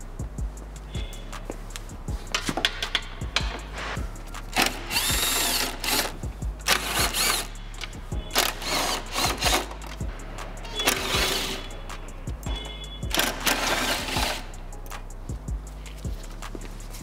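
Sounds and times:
background music with steady beat: 0.0s - 17.0s
power driver motor whine: 4.6s - 6.1s.

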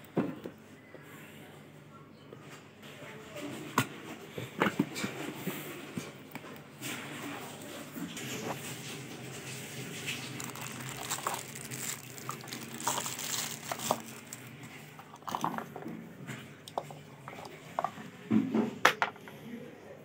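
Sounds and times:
plastic packaging crinkling: 9.5s - 16.0s.

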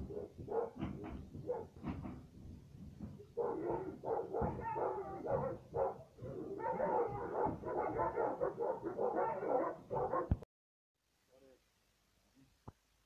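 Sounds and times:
dogs barking: 0.0s - 2.0s, 3.2s - 10.4s.

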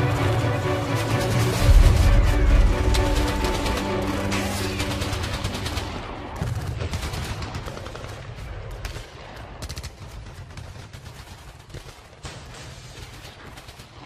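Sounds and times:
background music: 0.0s - 8.1s
gunfire bursts: 1.0s - 14.0s.

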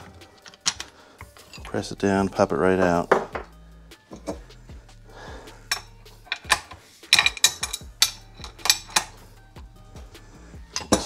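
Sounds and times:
metal tools clinking on metal: 0.4s - 1.9s, 4.1s - 4.4s, 5.7s - 9.2s, 10.7s - 11.0s.

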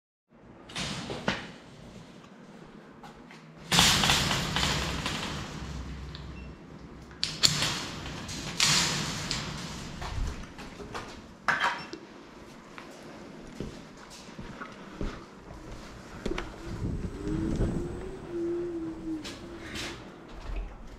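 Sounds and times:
wire-mesh cage door rattling: 3.7s - 11.2s.

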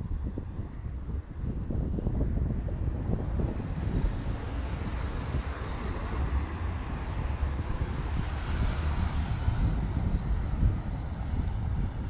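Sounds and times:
wind buffeting microphone: 0.0s - 12.0s
motorcycle passing alongside: 3.3s - 12.0s.

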